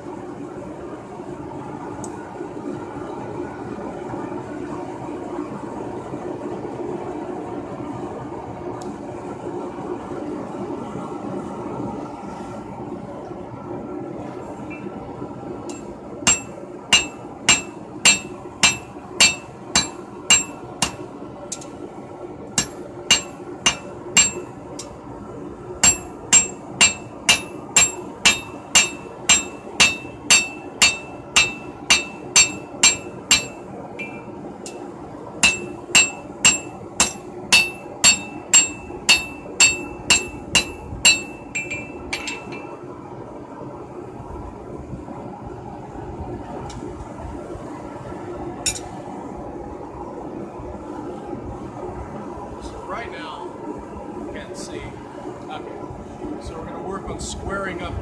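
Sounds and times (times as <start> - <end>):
steady low hum: 0.0 - 58.0
hammer striking steel on anvil: 15.7 - 21.7, 22.6 - 24.9, 25.8 - 34.8, 35.4 - 42.7.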